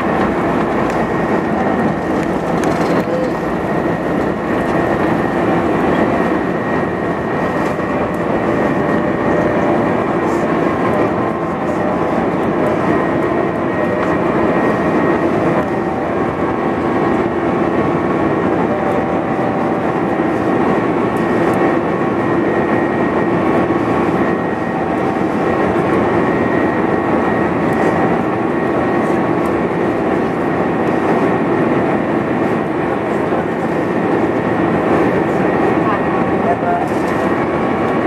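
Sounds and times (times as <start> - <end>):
jet engines and airflow rush: 0.0 - 38.0
steady humming tones: 0.0 - 38.0.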